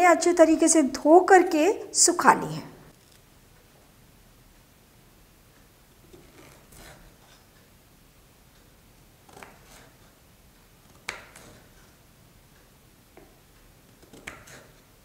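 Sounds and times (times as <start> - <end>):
knife cutting ginger: 6.1 - 7.2, 9.2 - 10.0, 10.8 - 11.8, 13.9 - 14.9.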